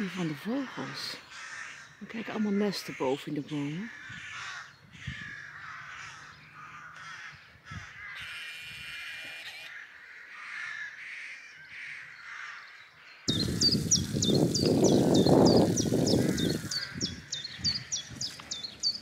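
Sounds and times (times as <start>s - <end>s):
rooks cawing: 0.0s - 18.0s
small bird chirping: 13.3s - 19.0s.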